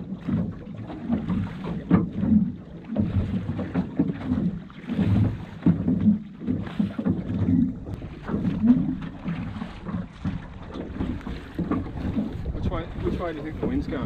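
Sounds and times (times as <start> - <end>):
oar strokes knocking and splashing: 0.0 - 14.0
wind on microphone: 6.6 - 14.0.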